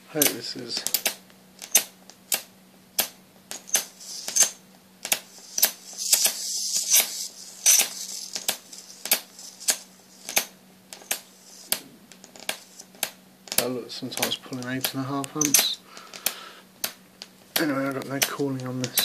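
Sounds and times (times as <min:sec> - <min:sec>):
steady low hum: 0:00.0 - 0:19.0
electric arc snapping: 0:00.2 - 0:19.0
electric arc hissing: 0:03.7 - 0:13.8.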